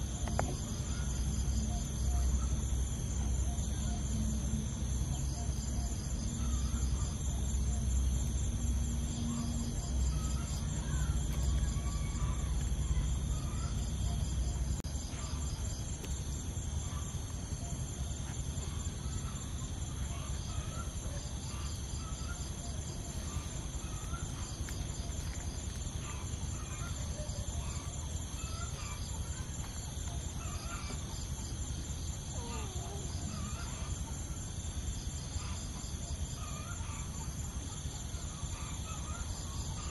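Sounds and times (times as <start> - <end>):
insect chorus shrilling: 0.0 - 39.9
small animal or bird calls: 18.6 - 31.6.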